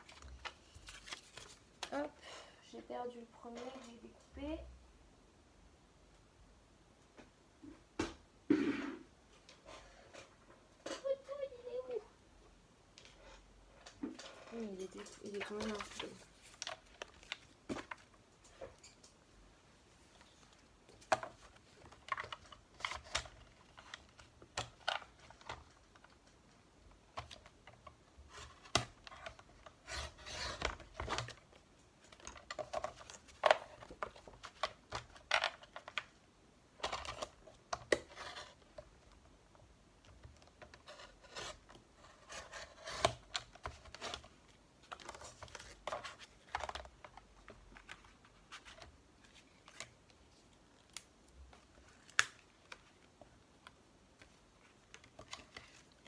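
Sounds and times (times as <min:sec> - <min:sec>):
paper being handled: 0:00.0 - 0:02.0.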